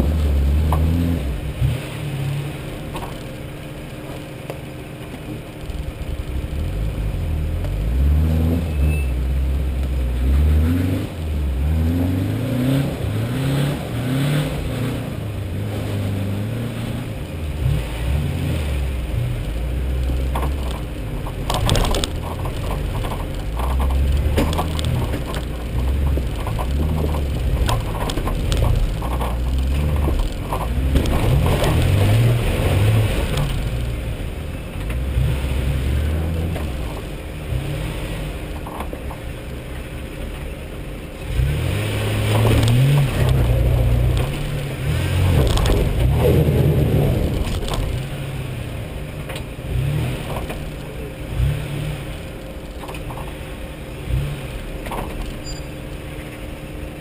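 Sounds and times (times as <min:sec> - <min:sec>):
off-road vehicle engine: 0:00.0 - 0:57.0
tyres knocking over loose rock: 0:20.3 - 0:32.6.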